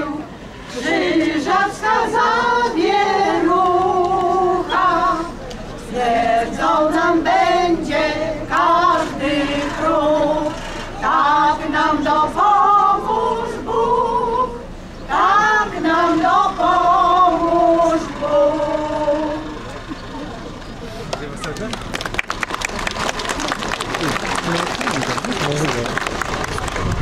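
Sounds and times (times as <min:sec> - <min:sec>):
choir singing: 0:00.0 - 0:19.7.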